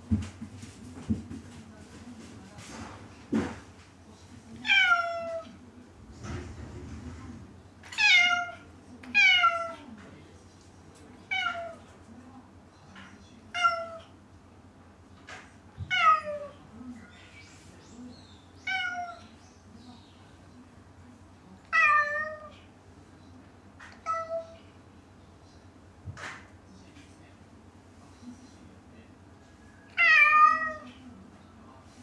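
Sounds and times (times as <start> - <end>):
cat meowing: 7.9 - 8.6, 9.2 - 9.8, 11.3 - 11.8, 13.5 - 14.1, 15.8 - 16.5, 18.6 - 19.3, 21.7 - 22.5, 24.0 - 24.6, 29.9 - 30.9.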